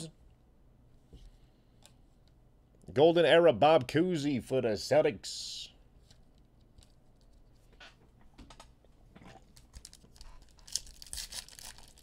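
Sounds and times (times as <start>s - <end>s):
foil pack tearing: 10.7s - 12.0s.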